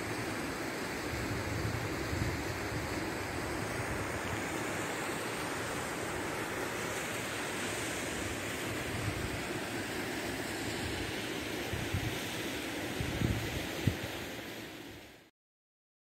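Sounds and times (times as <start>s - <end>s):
flowing water: 0.0s - 15.3s
wind on microphone: 1.1s - 4.2s, 8.9s - 9.4s, 11.7s - 12.3s, 12.9s - 14.1s.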